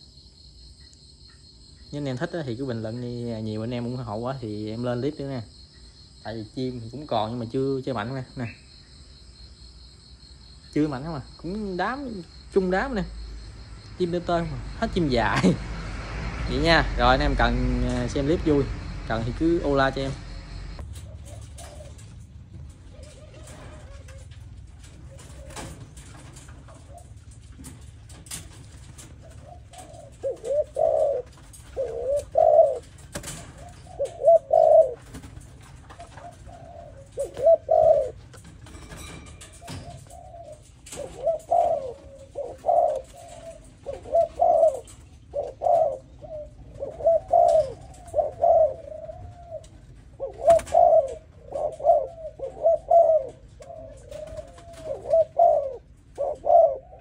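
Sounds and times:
dove cooing: 17.2 - 57.0.

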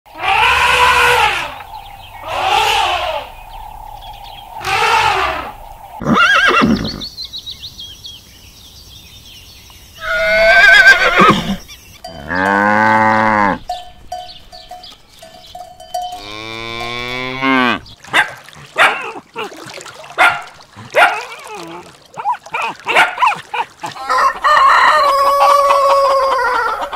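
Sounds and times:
elephant trumpeting: 0.1 - 3.4, 4.6 - 6.9
cattle mooing: 0.2 - 1.6, 2.2 - 3.4, 12.1 - 13.7, 16.1 - 17.9
horse whinnying: 0.2 - 1.6, 2.2 - 3.4, 4.6 - 7.0, 10.0 - 11.7
dog barking: 18.1 - 19.5, 20.2 - 21.4, 22.2 - 23.7.

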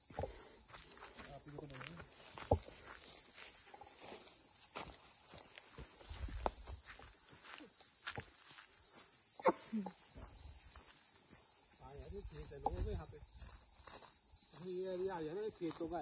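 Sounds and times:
footsteps in grass: 0.0 - 9.2, 10.1 - 16.0
high-pitched insect chorus: 0.0 - 16.0.

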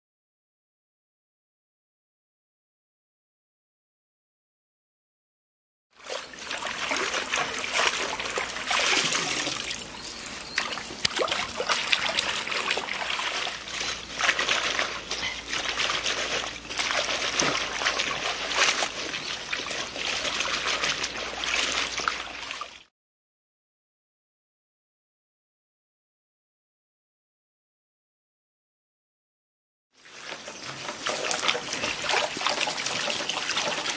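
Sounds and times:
hands washing onions in water: 6.0 - 22.9, 30.0 - 33.9
water splashing and trickling: 6.0 - 22.9, 30.0 - 33.9.

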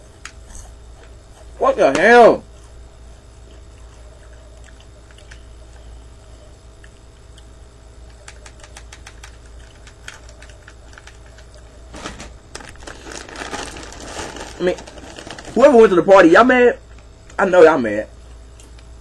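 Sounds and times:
crunching chips: 8.1 - 16.2
plastic bag crinkling: 9.0 - 17.4.

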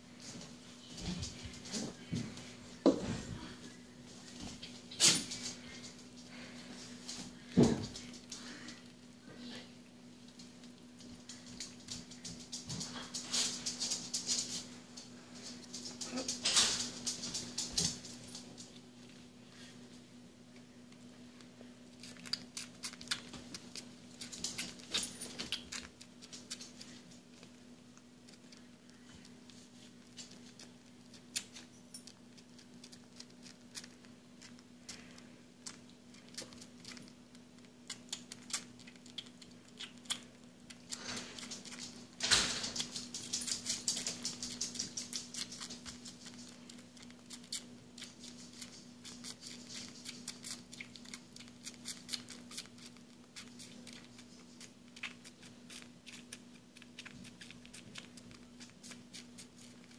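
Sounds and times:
squirrel suckling wet clicks: 21.9 - 59.9.

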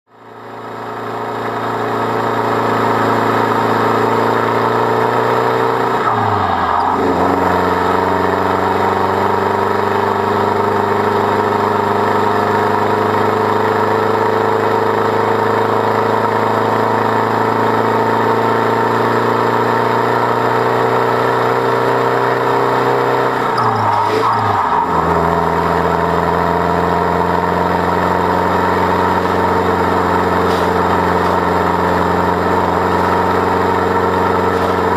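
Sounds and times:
engine pulling hard uphill: 0.1 - 34.9.

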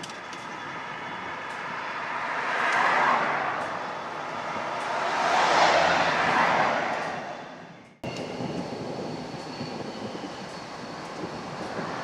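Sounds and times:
vehicle passing: 1.4 - 7.9.

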